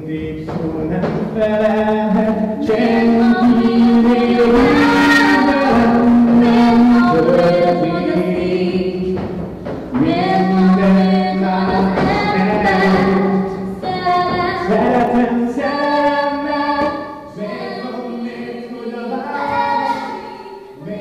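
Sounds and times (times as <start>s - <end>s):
group singing: 0.0s - 21.0s.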